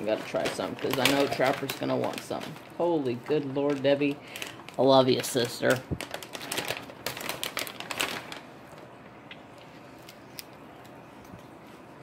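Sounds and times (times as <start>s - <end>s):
plastic bag crinkling: 0.0s - 9.0s.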